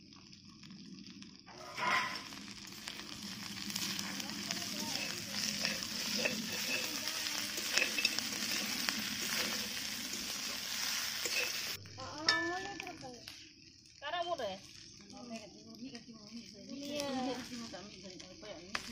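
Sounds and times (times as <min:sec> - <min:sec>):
meat sizzling in a wok: 0:00.0 - 0:18.9
metal spatula scraping pan: 0:01.6 - 0:02.4, 0:03.7 - 0:12.4.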